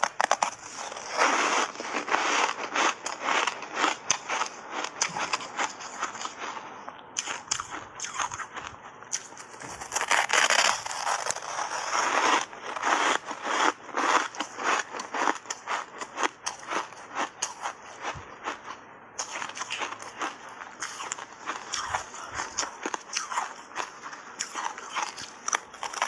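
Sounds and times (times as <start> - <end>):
ice being crunched and chewed: 0.0 - 26.0.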